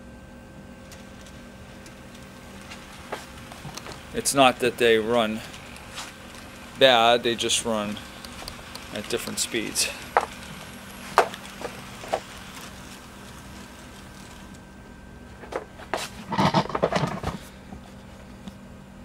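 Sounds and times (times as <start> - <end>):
model train motors humming: 0.0 - 19.0
knocks and rustling: 8.0 - 14.4, 15.3 - 18.4
sharp clicks: 8.2 - 9.4.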